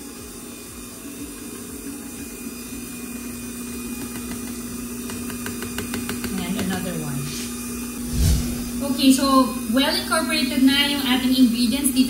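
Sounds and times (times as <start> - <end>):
stand mixer motor hum: 0.0 - 8.0.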